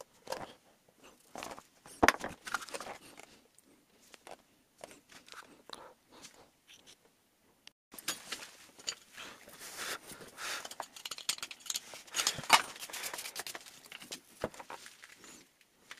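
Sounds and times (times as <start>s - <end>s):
metal clinks and knocks: 10.6s - 14.1s.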